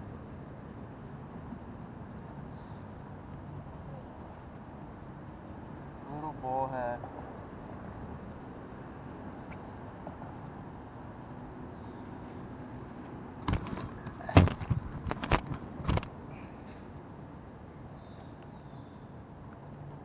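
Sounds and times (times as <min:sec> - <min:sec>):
distant road traffic hum: 0:00.0 - 0:20.0
camera gear knocks and clatters: 0:13.4 - 0:16.1.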